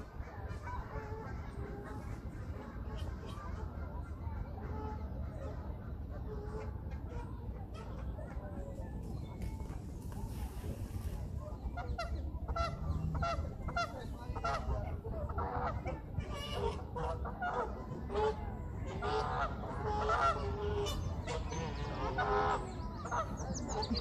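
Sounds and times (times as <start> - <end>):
low background rumble: 0.0 - 24.0
geese honking: 11.6 - 24.0.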